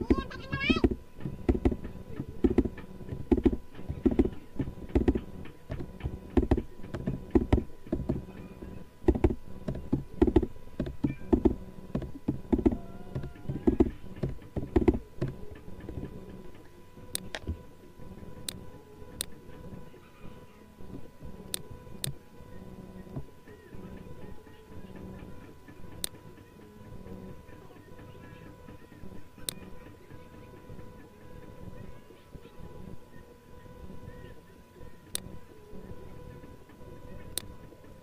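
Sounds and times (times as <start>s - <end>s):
keyboard typing: 0.0s - 8.2s, 9.1s - 15.4s
faint electrical hum: 0.0s - 38.0s.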